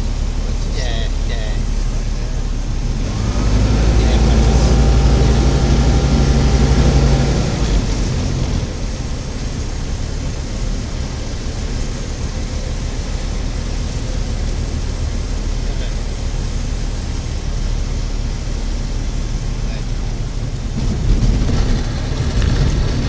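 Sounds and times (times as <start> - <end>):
light aircraft engine: 0.0 - 23.0
wind and rolling rumble: 0.0 - 23.0.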